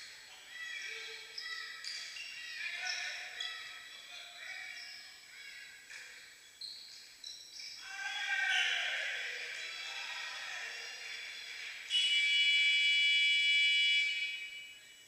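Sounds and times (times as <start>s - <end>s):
shoes squeaking on hall floor: 0.0s - 9.9s.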